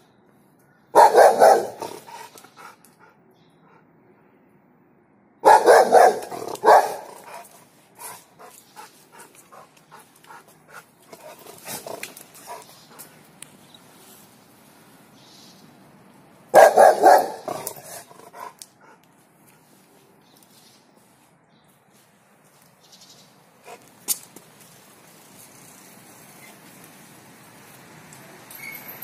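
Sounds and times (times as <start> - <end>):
dog barking rapidly: 0.9 - 2.3, 5.4 - 7.4, 16.5 - 18.5.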